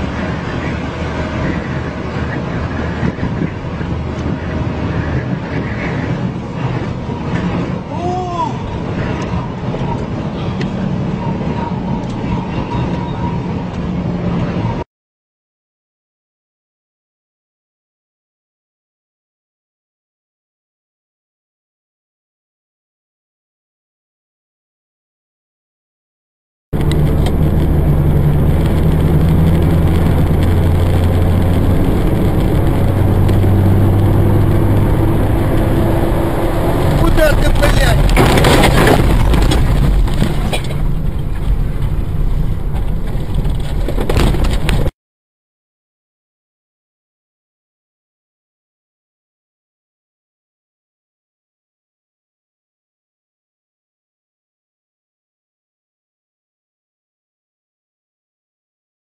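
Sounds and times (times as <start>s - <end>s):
tyre and wind noise: 0.0s - 14.8s, 26.8s - 44.9s
vehicle engine drone: 0.0s - 14.8s, 26.8s - 44.9s
road noise: 0.0s - 14.9s, 26.8s - 44.9s
rising and falling tone: 26.8s - 44.9s.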